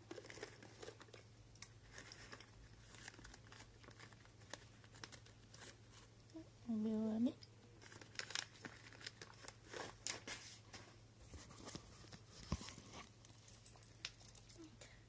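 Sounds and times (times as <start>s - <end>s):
cats crunching dry treats: 0.0s - 6.0s, 7.7s - 10.3s.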